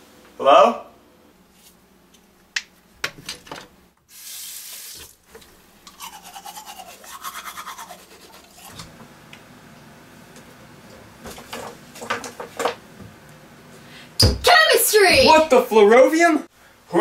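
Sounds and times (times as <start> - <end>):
short hiss: 4.1 - 5.1
toothbrush scrubbing teeth: 5.9 - 8.9.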